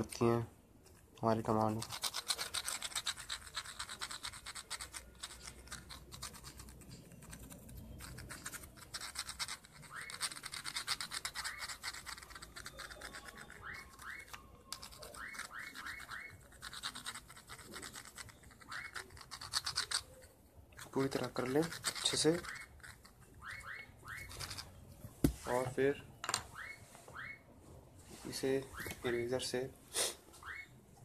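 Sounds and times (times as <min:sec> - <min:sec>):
pencil scribbling on circuit board: 0:01.4 - 0:24.8.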